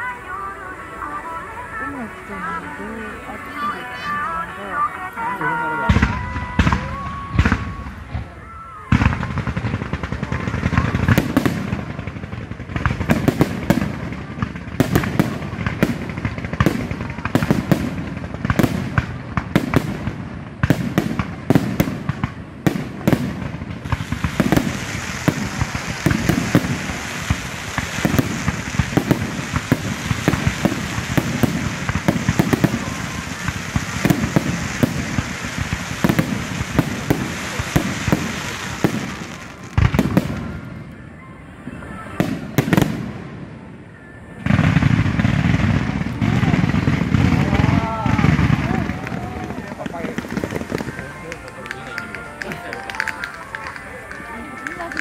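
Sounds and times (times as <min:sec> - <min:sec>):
fountain fireworks crackling: 0:00.0 - 0:55.0
firework shells bursting: 0:09.2 - 0:40.6, 0:48.1 - 0:55.0.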